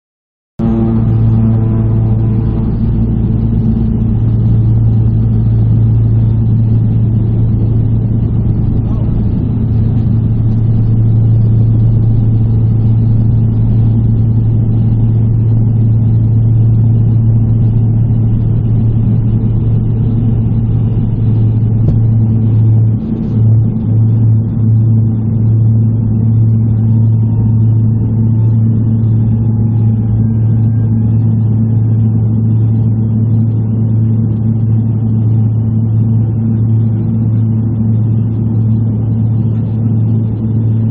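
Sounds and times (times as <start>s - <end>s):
turboprop propeller drone: 0.6s - 40.9s.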